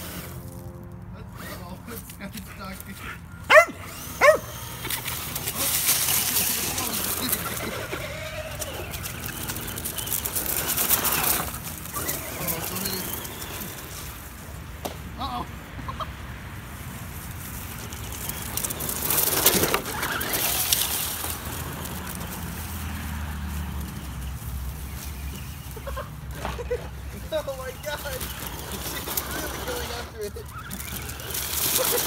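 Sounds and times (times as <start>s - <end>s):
rc truck tyre and chassis noise: 0.0s - 15.1s, 16.6s - 32.0s
rustling leaves: 0.0s - 32.0s.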